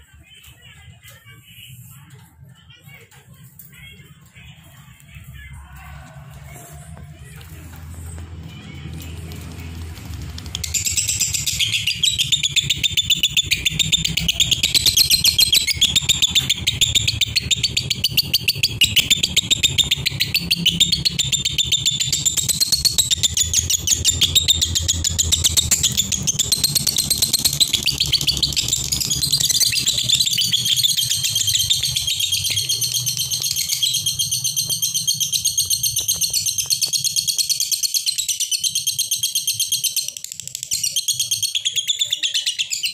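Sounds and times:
lovebirds chirping: 8.5 - 39.9.

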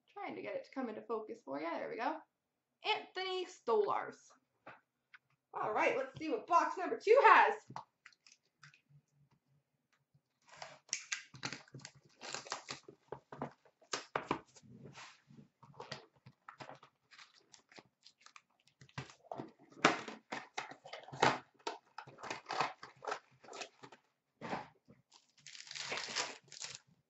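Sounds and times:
cardboard and wrapper tearing: 10.4 - 13.0, 15.8 - 26.9.

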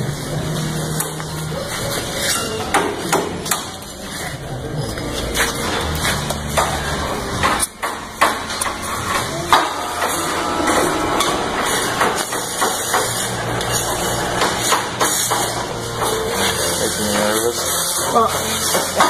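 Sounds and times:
steady low hum: 4.3 - 15.0
sharp knocks and clanks: 6.2 - 16.2.

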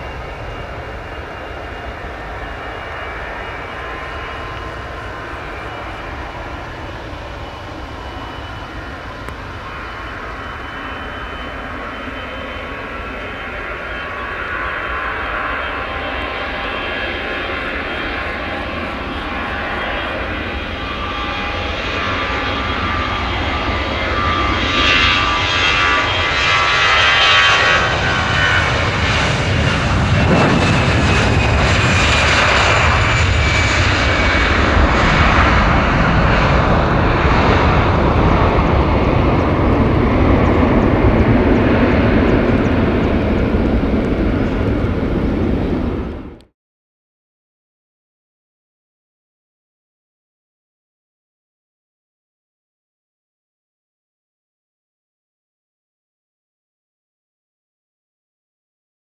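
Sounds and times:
jet engines roaring: 0.0 - 46.5.

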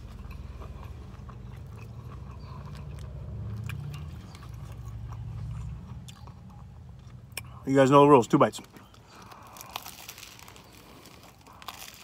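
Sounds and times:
chewing with wet mouth clicks: 0.0 - 7.6.

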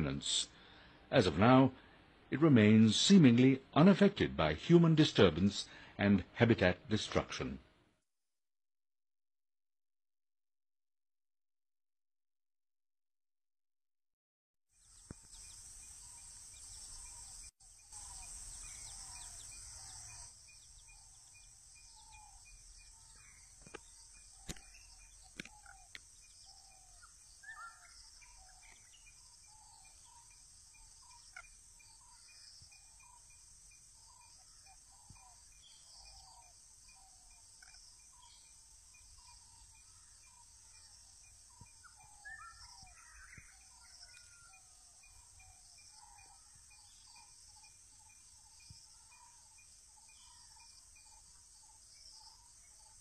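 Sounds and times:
bird calls: 14.8 - 53.0
high insect drone: 14.8 - 53.0
sharp clicks: 23.6 - 26.1.

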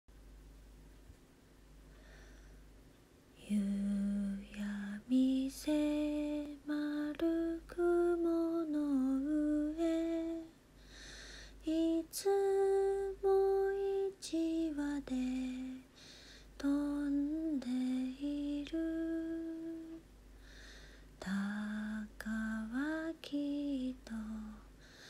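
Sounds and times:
woman singing unaccompanied: 3.4 - 10.6, 11.6 - 15.9, 16.6 - 20.1, 21.2 - 24.8.

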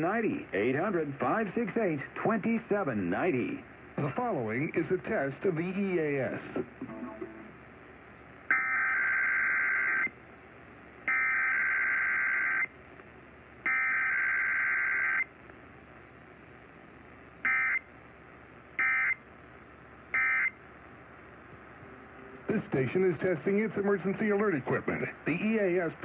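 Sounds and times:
harsh data-tone bursts from radio: 17.4 - 17.8, 18.8 - 19.2, 20.1 - 20.6.

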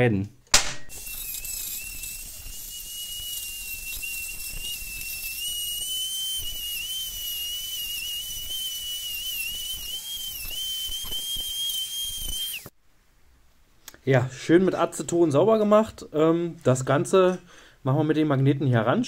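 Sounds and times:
rotary tool grinding steel: 0.9 - 12.7.

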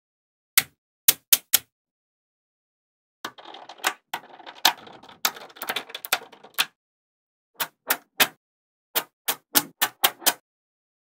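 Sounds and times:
magnet balls clattering: 3.3 - 6.7.

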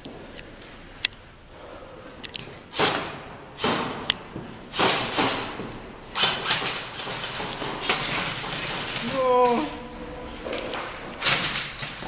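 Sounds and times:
airsoft gunfire clatter: 4.7 - 5.6, 6.2 - 9.2
rushing footsteps: 9.8 - 12.0.

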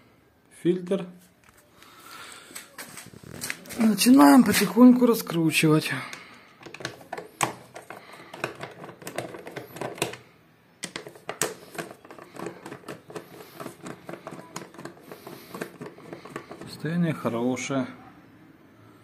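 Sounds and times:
screwdriver clicks and taps: 6.6 - 10.2.

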